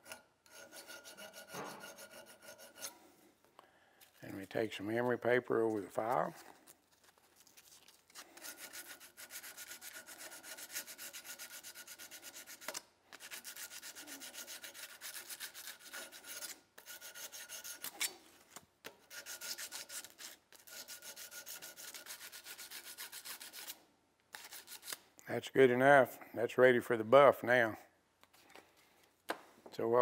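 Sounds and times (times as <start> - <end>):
file rubbing on steel: 0.0 - 3.1, 8.2 - 18.2, 19.0 - 25.0.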